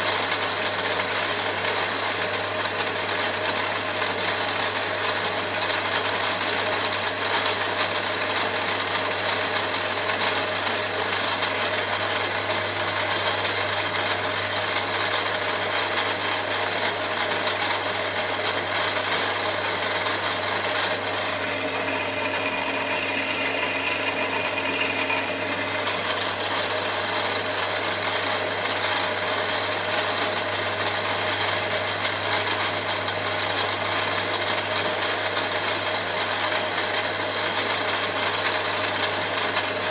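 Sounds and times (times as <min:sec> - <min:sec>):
milling machine cutting metal: 0:19.8 - 0:27.6
thin high whine: 0:21.0 - 0:26.5.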